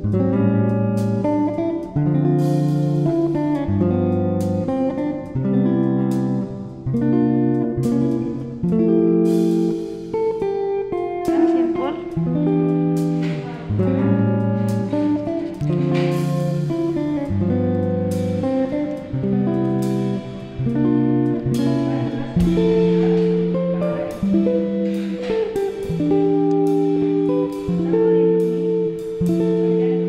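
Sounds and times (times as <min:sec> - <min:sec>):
plucked guitar melody: 0:00.0 - 0:30.0
low bass line: 0:11.2 - 0:30.0.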